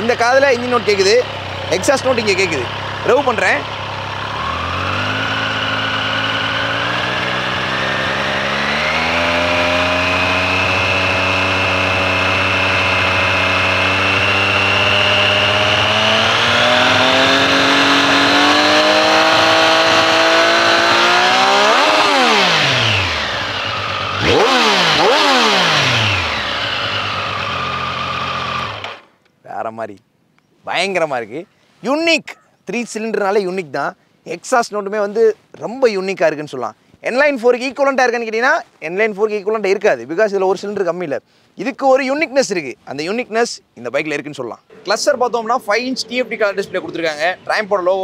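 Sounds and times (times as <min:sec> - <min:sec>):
motorcycle engine idling: 0:00.0 - 0:29.2
motorcycle engine revving: 0:00.0 - 0:29.2.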